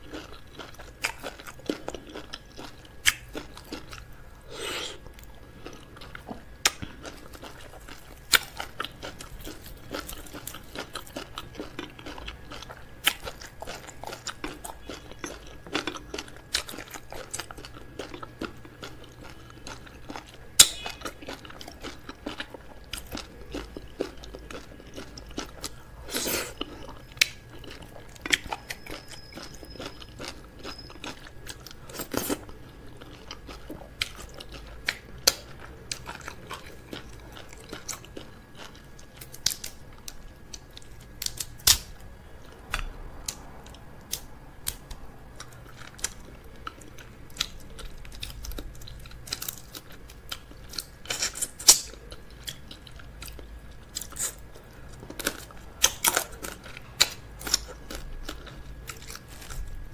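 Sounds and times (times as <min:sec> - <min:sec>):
close chewing and biting: 0:00.0 - 0:59.9
crab shell cracking: 0:41.2 - 0:41.9.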